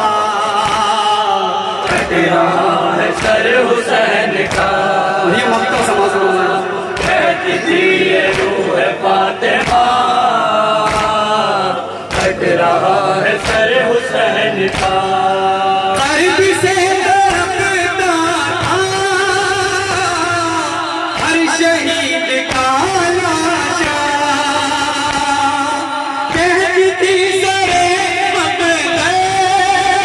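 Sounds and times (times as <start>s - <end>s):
men chanting in chorus: 0.0s - 30.0s
hands slapping chests: 0.6s - 1.2s, 1.8s - 2.4s, 3.0s - 15.2s, 25.0s - 25.5s.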